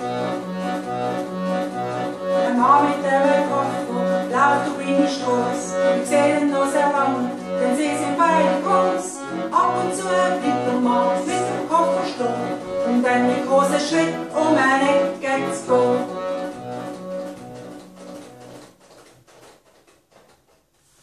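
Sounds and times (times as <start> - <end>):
accordion: 0.0 - 19.6
woman singing: 2.4 - 16.2.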